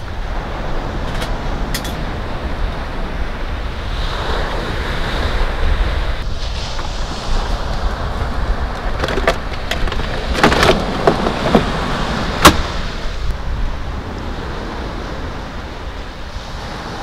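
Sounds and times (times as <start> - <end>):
surf: 0.0 - 17.0
wind: 0.0 - 17.0
contents knocking: 9.0 - 11.7.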